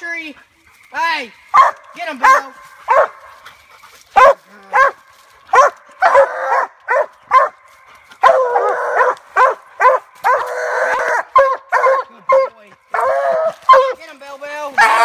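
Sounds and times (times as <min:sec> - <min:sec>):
dogs' drawn-out calls: 0:01.5 - 0:14.0
hounds barking: 0:01.5 - 0:14.0, 0:14.8 - 0:15.0.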